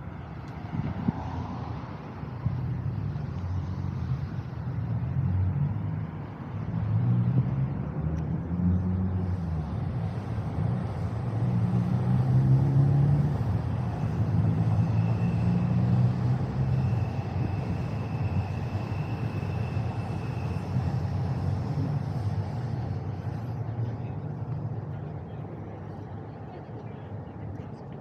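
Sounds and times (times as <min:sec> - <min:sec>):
traffic rumble: 0:00.0 - 0:28.0
thin high whine: 0:13.8 - 0:23.6.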